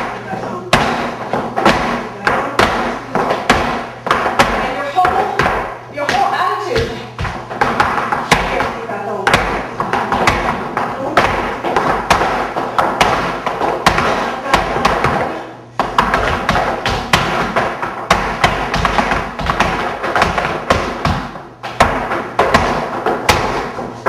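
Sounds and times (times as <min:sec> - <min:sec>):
dance shoes striking wooden floor: 0:00.0 - 0:24.0.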